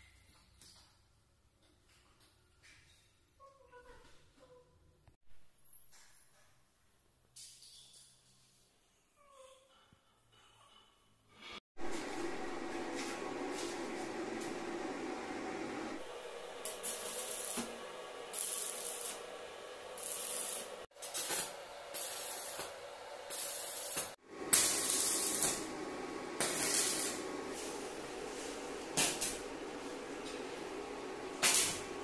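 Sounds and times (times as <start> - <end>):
arc welding crackling: 16.0 - 28.1, 31.3 - 32.0.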